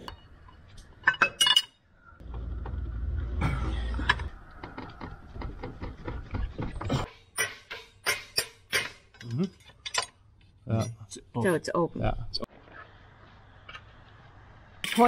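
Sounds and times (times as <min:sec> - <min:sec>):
metal tools clinking: 0:07.4 - 0:10.2.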